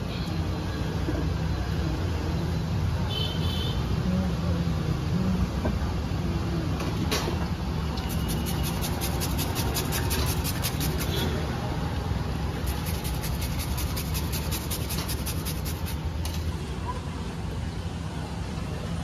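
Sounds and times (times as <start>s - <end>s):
hand grater rasping: 8.1s - 11.1s, 12.6s - 16.0s.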